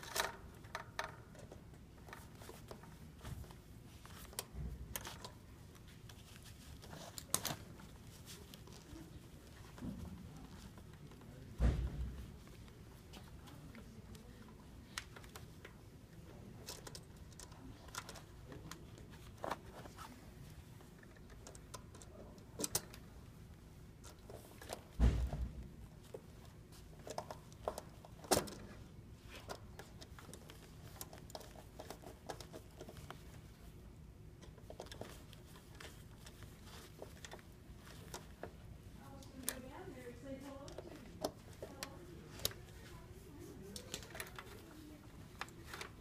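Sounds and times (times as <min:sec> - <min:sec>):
thump: 0:11.6 - 0:12.2, 0:25.0 - 0:25.6.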